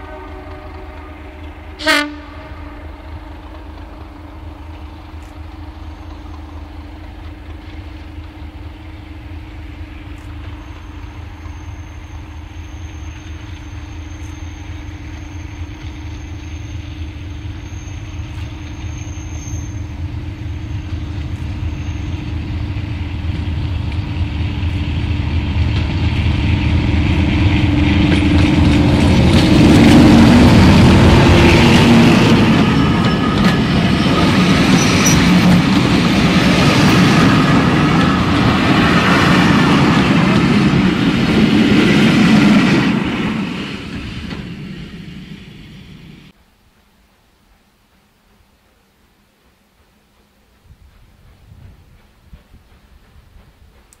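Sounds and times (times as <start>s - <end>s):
diesel locomotive engine: 0.0s - 46.4s, 47.1s - 54.0s
wheels clicking over rail joints: 23.2s - 44.6s.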